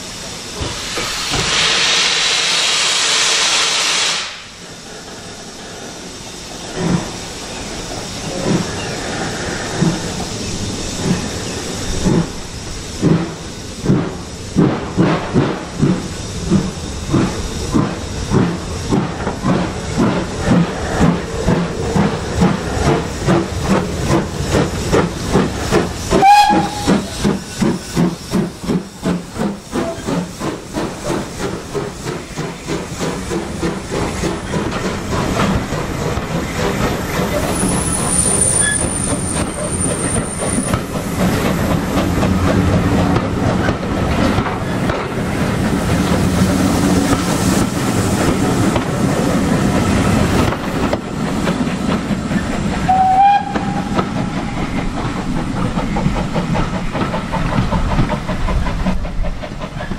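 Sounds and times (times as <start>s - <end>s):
steam locomotive exhaust beats: 0.0s - 59.9s
train coaches rumbling on rails: 0.0s - 59.9s
steam locomotive whistle: 26.1s - 27.1s, 52.8s - 54.2s
thin high wheel squeal: 37.5s - 40.8s.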